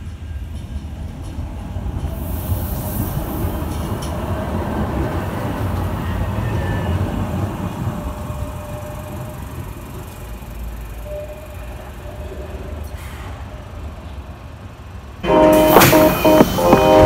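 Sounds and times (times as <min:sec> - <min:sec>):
tram wheels rumbling on rail: 0:00.0 - 0:17.0
hiss: 0:02.0 - 0:04.2.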